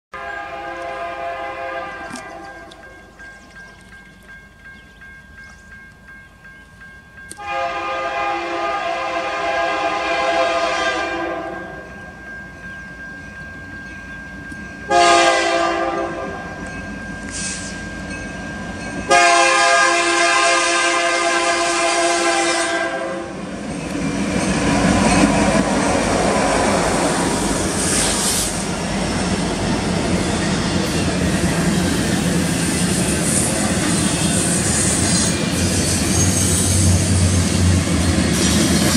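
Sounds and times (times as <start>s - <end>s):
locomotive air horn blasts: 0.1s - 2.8s, 7.4s - 11.9s, 14.9s - 16.4s, 19.1s - 23.4s
train rumbling past: 0.2s - 38.9s.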